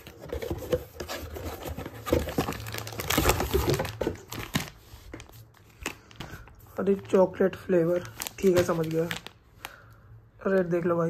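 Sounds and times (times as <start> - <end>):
packaging crinkling and ripping: 1.3 - 6.4, 7.9 - 9.8.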